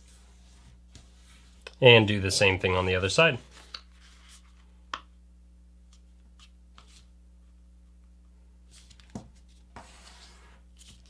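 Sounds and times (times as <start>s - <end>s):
low steady hum: 0.0s - 11.0s
paper rustling: 8.7s - 11.0s.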